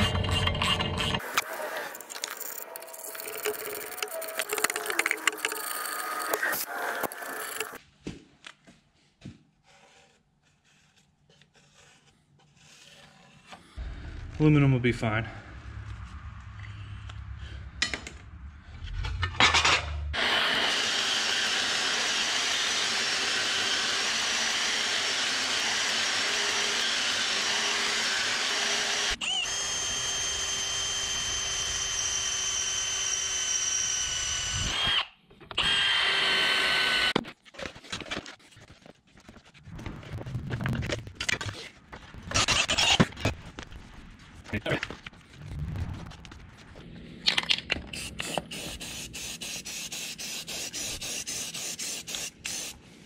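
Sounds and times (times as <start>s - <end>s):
cordless drill drilling metal: 20.2s - 37.2s.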